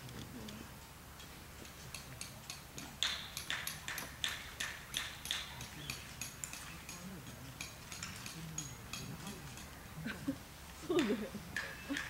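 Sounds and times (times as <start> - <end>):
sharp hammer taps: 1.9 - 9.7.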